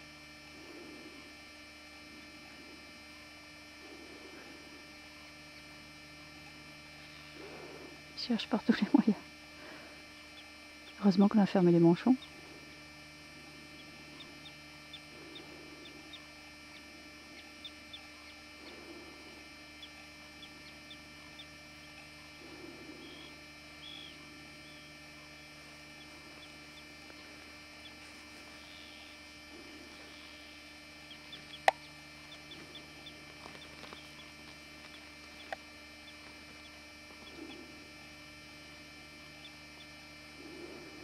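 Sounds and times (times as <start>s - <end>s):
steady electrical hum: 0.0s - 41.0s
faint rustling and ticking: 12.2s - 38.2s.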